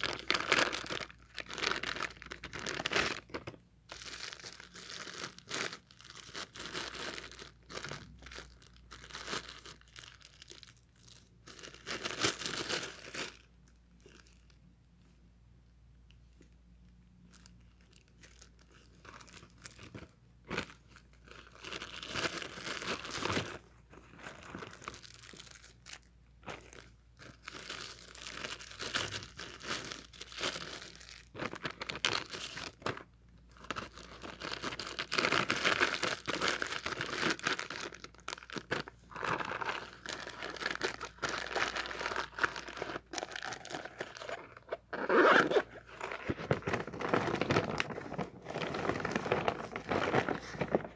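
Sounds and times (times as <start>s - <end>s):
plastic bag crinkling: 0.0s - 14.6s, 17.2s - 50.9s
loud plastic crunch: 33.9s - 50.9s.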